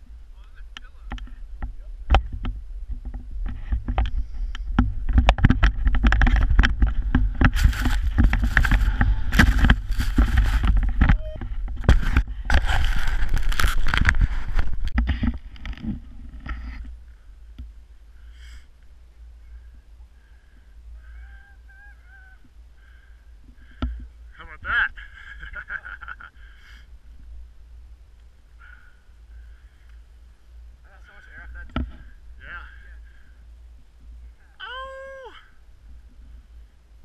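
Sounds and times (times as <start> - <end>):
rushing wind: 0.0 - 18.2.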